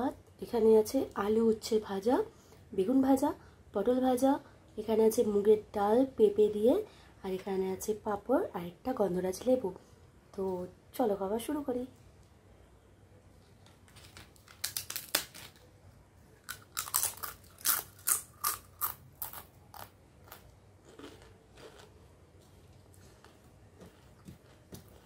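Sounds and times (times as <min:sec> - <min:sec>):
crisp papadum cracking: 0:13.6 - 0:15.8, 0:16.4 - 0:21.9
chewing: 0:16.5 - 0:25.0.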